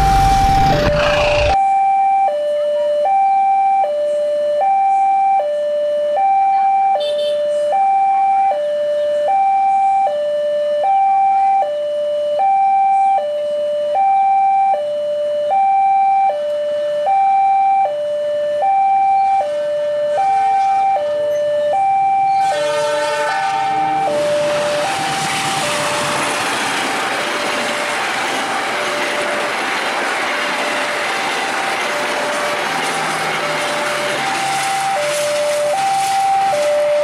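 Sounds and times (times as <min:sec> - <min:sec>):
two-tone crossing alarm: 0:00.0 - 0:37.0
locomotive horn: 0:07.0 - 0:07.4, 0:19.2 - 0:21.2, 0:22.2 - 0:26.6
train wheels on rails: 0:23.6 - 0:37.0.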